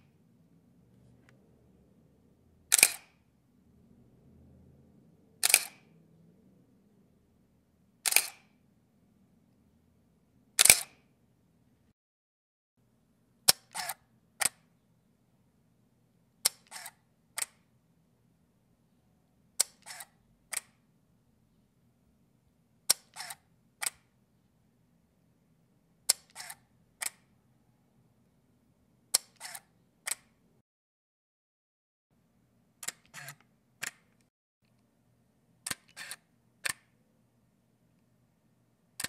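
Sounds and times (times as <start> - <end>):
camera shutter clicking: 2.7 - 3.1, 5.4 - 5.8, 8.0 - 8.4, 10.6 - 11.0, 13.5 - 14.6, 16.5 - 17.5, 19.6 - 20.7, 22.9 - 24.0, 26.2 - 27.2, 29.2 - 30.2, 32.8 - 33.4, 35.7 - 36.8.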